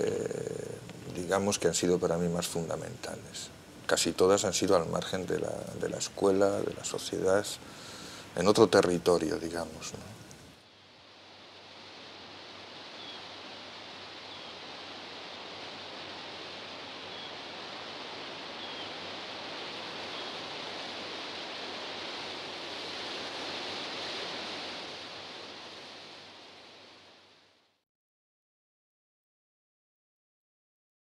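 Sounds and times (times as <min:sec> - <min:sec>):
wind rushing through grass: 0:00.0 - 0:27.8
faint high chirps: 0:17.0 - 0:17.4.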